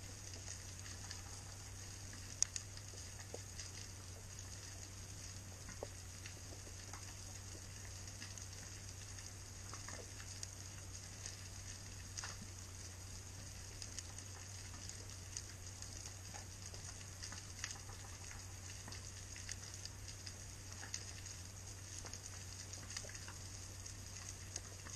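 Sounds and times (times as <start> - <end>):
steady low hum: 0.0 - 24.9.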